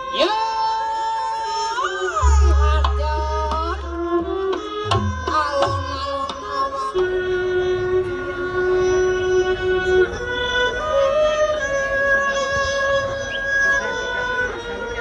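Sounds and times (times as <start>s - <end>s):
deep bass note: 2.2s - 5.8s
sharp drum strikes: 2.2s - 6.1s
held melody line: 2.2s - 6.8s.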